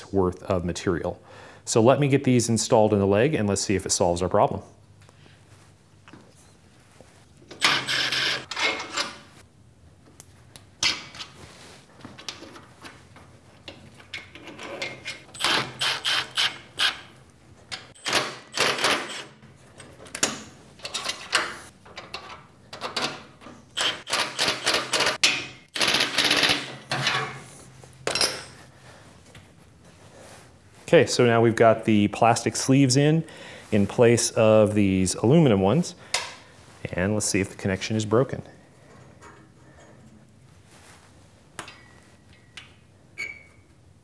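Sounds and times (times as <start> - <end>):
metal tools and bolts clinking: 7.5 - 9.3, 17.7 - 23.2, 28.0 - 28.7.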